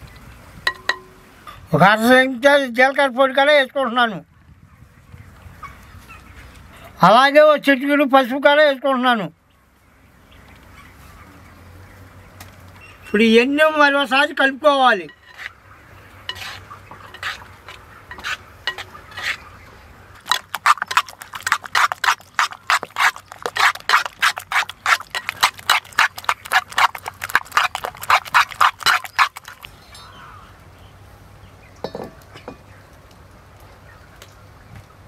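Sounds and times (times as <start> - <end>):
metal spoon beating in clay bowl: 18.1 - 19.3, 20.2 - 29.7.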